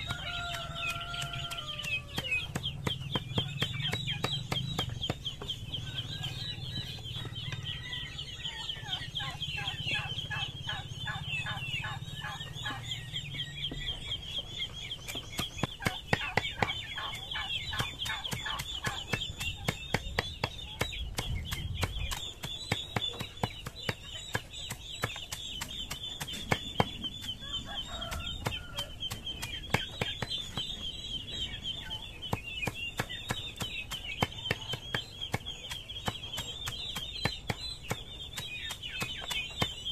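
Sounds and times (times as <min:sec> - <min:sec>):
knife chopping greens: 0:00.0 - 0:05.5, 0:32.3 - 0:39.9
chickens clucking: 0:00.0 - 0:39.9.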